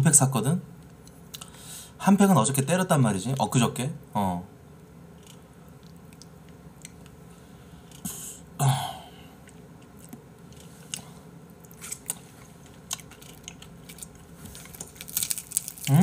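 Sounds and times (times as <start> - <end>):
short breath: 1.4 - 2.0
soft chewing: 5.2 - 8.2, 9.4 - 16.0
man grunting: 8.6 - 9.1.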